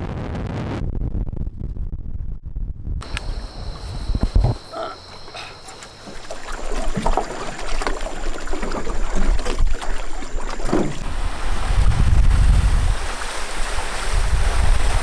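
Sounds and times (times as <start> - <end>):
wind rumbling on microphone: 0.0 - 4.7, 8.5 - 15.0
water splashing around boat: 4.6 - 15.0.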